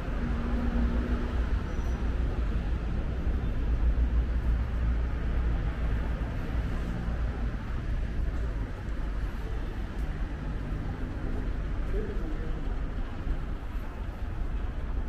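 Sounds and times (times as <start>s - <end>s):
low rumble of traffic: 0.0s - 15.0s.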